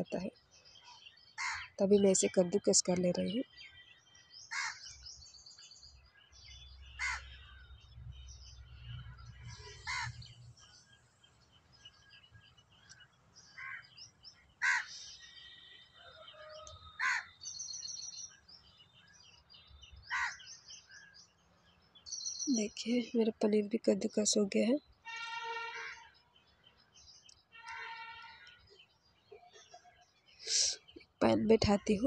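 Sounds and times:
small birds chirping: 0:00.0 - 0:32.0
crow cawing: 0:01.4 - 0:01.7, 0:04.5 - 0:04.9, 0:07.0 - 0:07.4, 0:09.8 - 0:10.3, 0:13.6 - 0:13.9, 0:14.6 - 0:15.0, 0:17.0 - 0:17.4, 0:20.1 - 0:20.5, 0:25.5 - 0:26.1.

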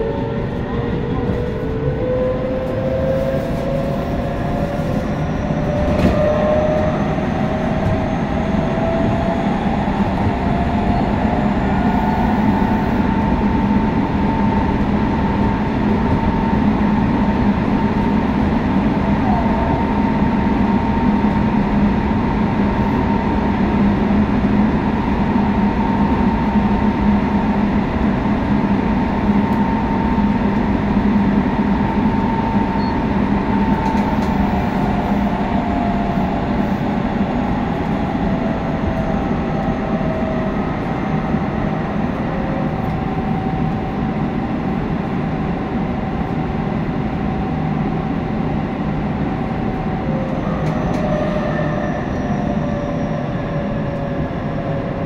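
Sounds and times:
train running rumble and hum: 0:00.0 - 0:55.0
train traction inverter whine: 0:00.0 - 0:55.0.

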